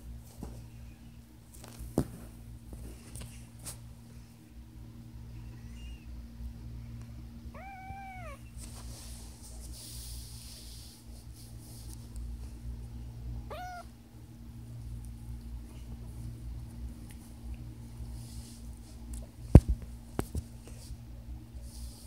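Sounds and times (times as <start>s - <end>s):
cat meowing: 7.5s - 8.5s, 13.5s - 13.9s.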